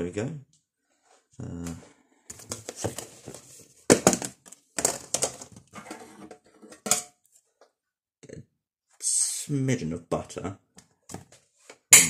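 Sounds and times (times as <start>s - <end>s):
plastic tub crinkling and snapping: 3.9s - 5.7s.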